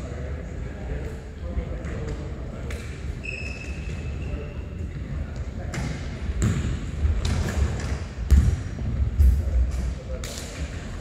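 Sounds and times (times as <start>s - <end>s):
low rumble of hall noise: 0.0s - 11.0s
ball kicked and bouncing: 5.7s - 9.4s.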